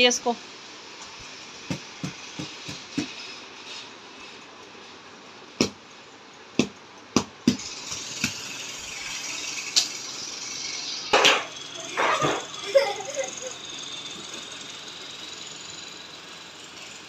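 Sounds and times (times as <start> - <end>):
sharp taps and knocks: 1.6 - 3.2, 6.6 - 8.4.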